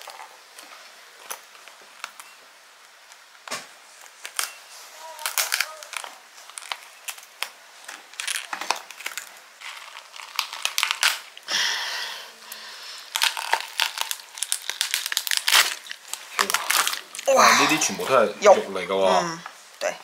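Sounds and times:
lobster shell cracking: 5.2s - 11.5s, 12.5s - 17.7s.

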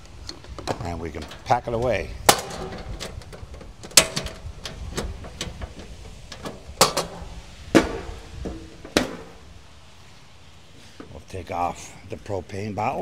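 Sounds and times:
metal stove panels clanking shut: 0.3s - 9.6s.

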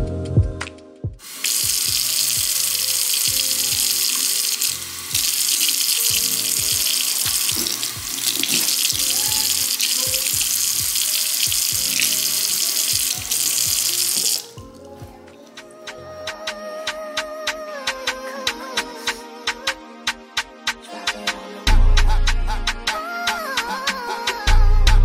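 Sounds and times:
faucet running into steel sink: 1.2s - 14.6s.

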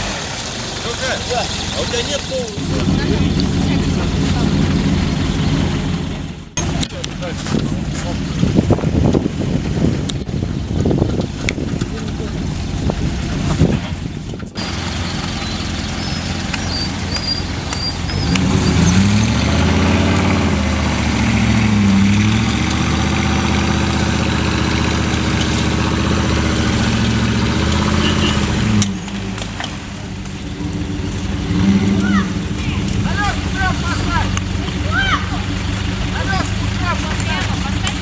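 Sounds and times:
suv engine revving hard: 14.6s - 29.5s, 30.5s - 37.2s.

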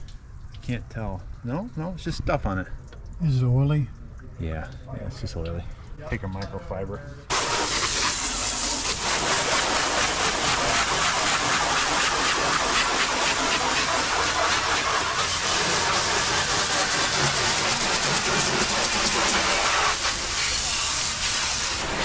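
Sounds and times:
pressure washer spraying water: 7.3s - 22.0s.

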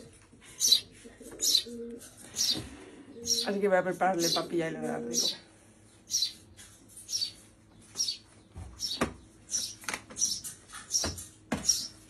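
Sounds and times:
chick begging chirps: 0.6s - 1.8s, 3.2s - 3.5s.

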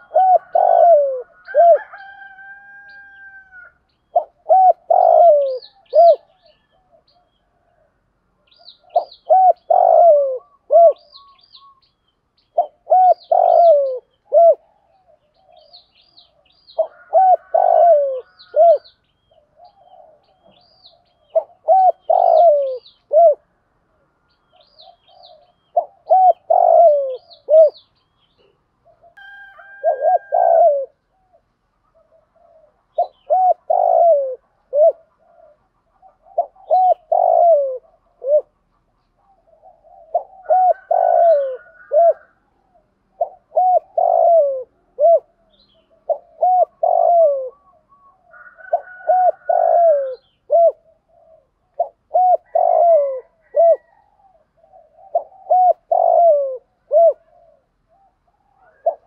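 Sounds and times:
dove cooing: 0.0s - 59.0s.

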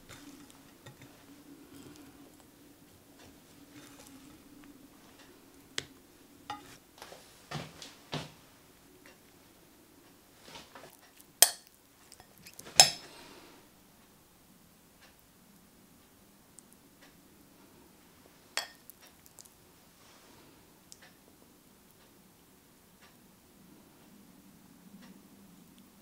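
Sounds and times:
utensils clinking on ceramic plate: 6.5s - 6.8s, 11.4s - 13.1s, 18.6s - 18.8s.

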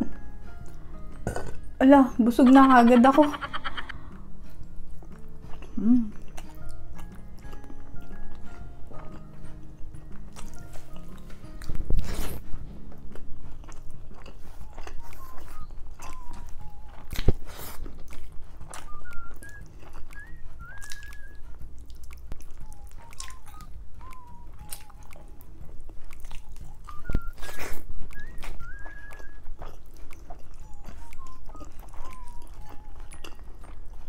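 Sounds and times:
chewing and lip smacking: 2.8s - 12.4s, 13.0s - 34.0s
whistle-like melody: 5.9s - 12.3s, 14.3s - 21.7s, 22.3s - 34.0s.

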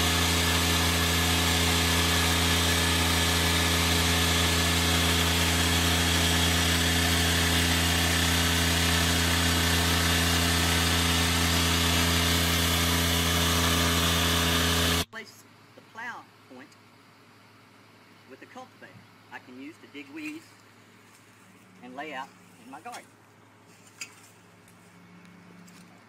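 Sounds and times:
harvester mechanical drone: 0.0s - 15.1s.

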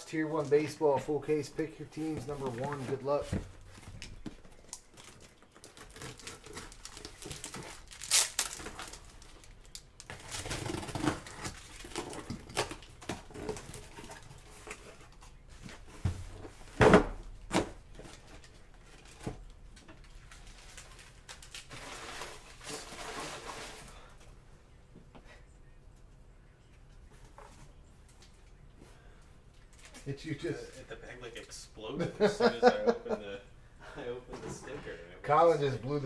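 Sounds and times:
cardboard rustling and scraping: 21.7s - 24.1s.

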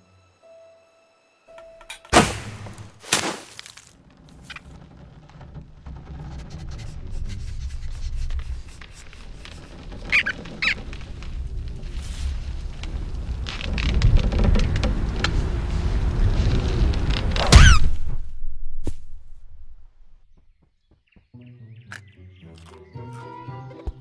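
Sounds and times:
short squeaks: 4.2s - 12.0s, 17.4s - 18.1s
low rumble: 10.8s - 20.4s.

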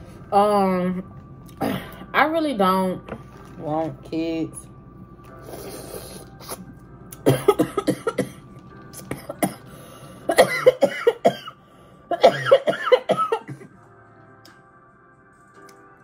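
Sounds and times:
woman coughing and choking: 1.5s - 2.0s, 7.2s - 8.4s, 9.0s - 9.6s, 10.3s - 13.8s.

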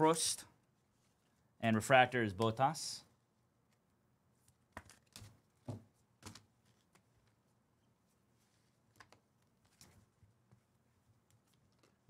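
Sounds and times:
trading cards flipping: 4.4s - 5.4s.

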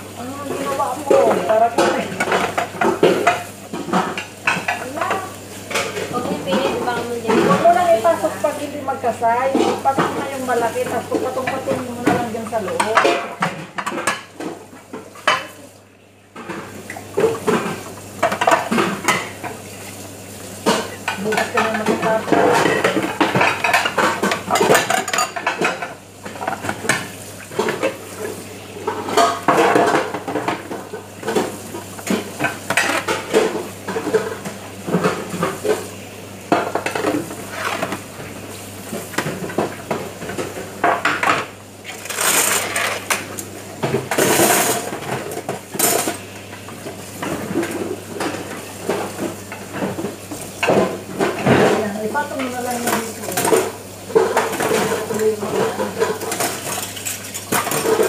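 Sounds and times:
metal dishes and cutlery clattering: 20.6s - 27.0s, 43.8s - 46.2s, 52.8s - 58.0s.

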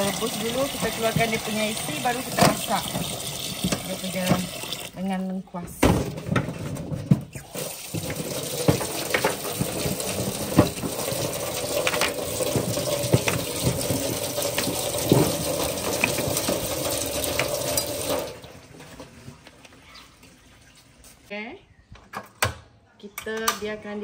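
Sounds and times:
tap water running: 0.0s - 5.0s, 7.4s - 18.9s
clams knocking and clattering: 7.9s - 18.3s.

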